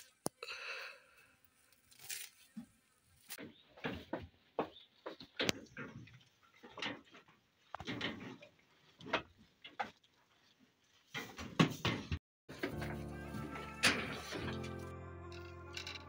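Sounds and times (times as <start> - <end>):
goats chewing fodder: 4.8 - 11.2.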